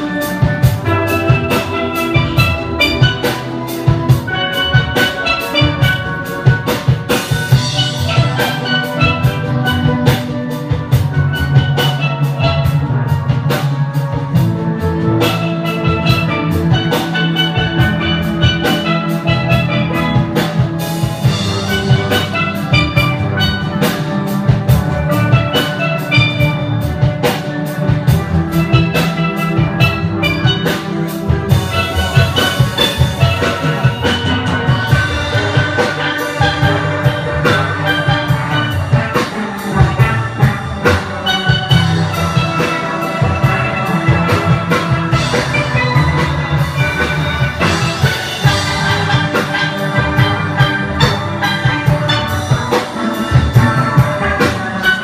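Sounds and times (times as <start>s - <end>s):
steady percussion beat: 0.0s - 55.0s
steel band playing a tune: 0.0s - 55.0s.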